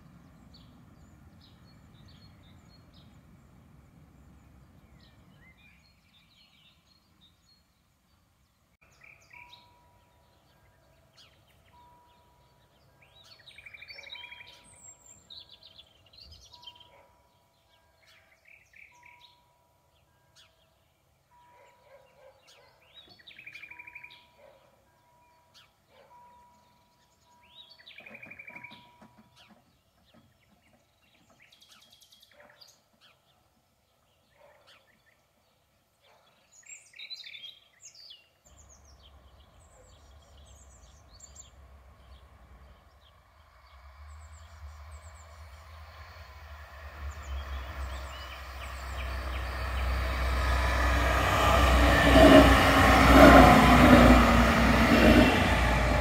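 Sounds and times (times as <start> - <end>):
songbirds singing: 0.0 - 56.0.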